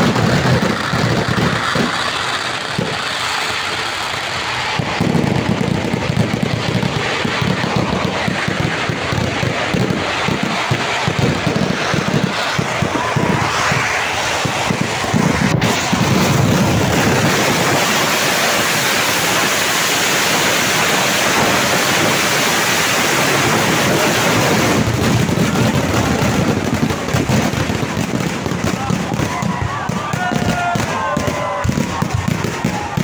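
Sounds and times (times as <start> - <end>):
firecrackers exploding: 0.0 - 33.0.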